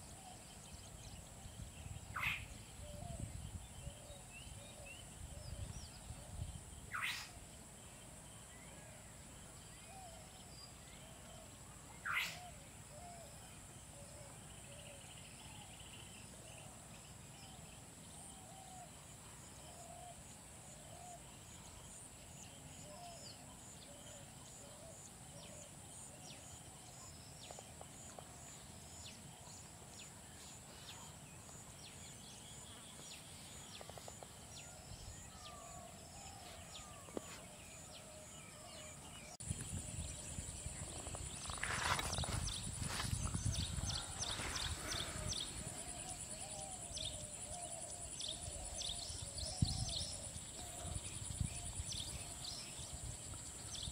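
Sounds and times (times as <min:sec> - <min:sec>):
sharp sweeping bird calls: 0:02.1 - 0:02.6, 0:06.9 - 0:07.4, 0:12.0 - 0:12.5
high insect drone: 0:38.8 - 0:53.9.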